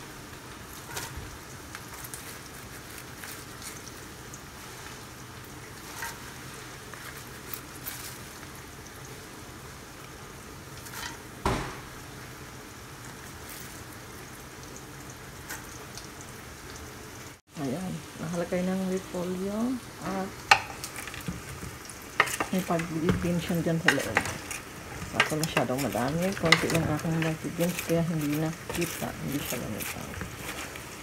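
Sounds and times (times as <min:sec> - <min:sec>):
sauce bubbling in a pot: 0:00.0 - 0:31.0
sharp knock: 0:11.4 - 0:12.0.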